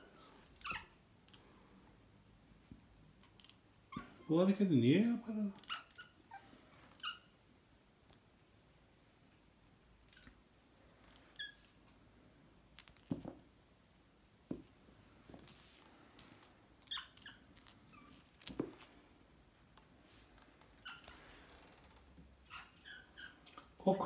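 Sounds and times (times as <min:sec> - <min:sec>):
toy clicking and jingling: 0:15.4 - 0:19.8.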